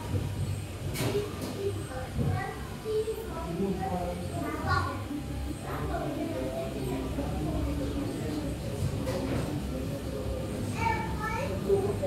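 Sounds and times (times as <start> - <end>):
faint voices: 0.0 - 12.0.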